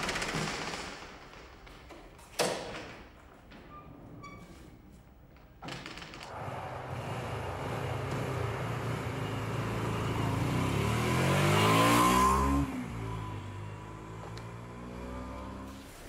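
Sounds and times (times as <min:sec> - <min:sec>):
motorcycle engine revving: 0:06.3 - 0:15.9.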